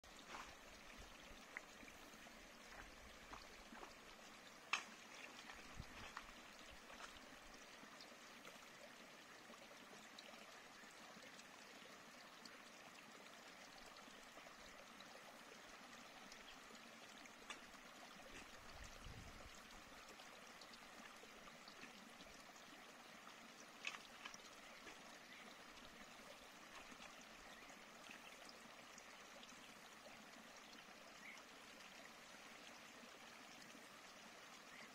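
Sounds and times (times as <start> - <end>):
stream running: 0.0 - 34.9.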